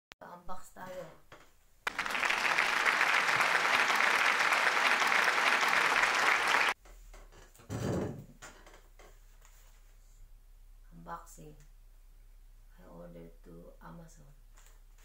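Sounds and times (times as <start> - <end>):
crowd clapping: 1.9 - 6.8.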